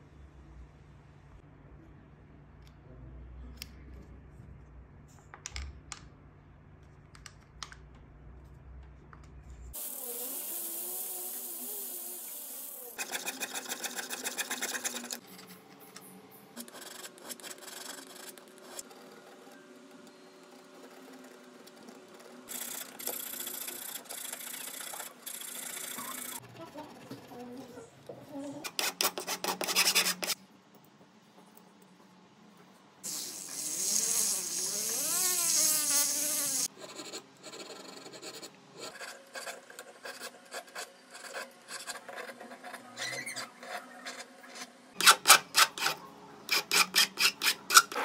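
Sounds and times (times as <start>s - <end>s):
hand file rasping on metal: 45.0s - 48.0s
jeweller's saw strokes: 45.0s - 48.0s.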